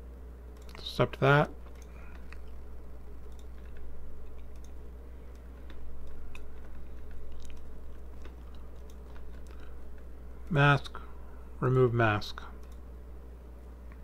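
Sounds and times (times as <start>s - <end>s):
steady low hum: 0.0s - 14.0s
computer mouse clicks: 0.6s - 0.8s, 3.2s - 10.6s, 12.6s - 12.9s.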